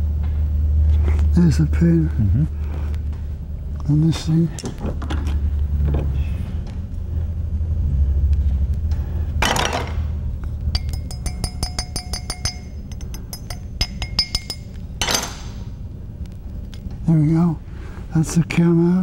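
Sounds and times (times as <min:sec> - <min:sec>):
steel punch clinking on metal: 0:10.7 - 0:15.6.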